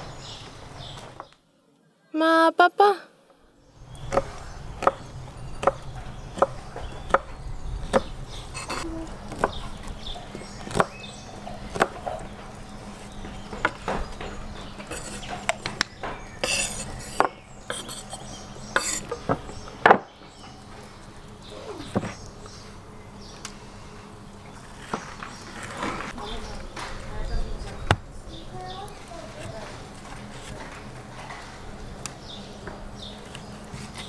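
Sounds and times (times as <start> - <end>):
knife chopping on wooden board: 4.1 - 5.0.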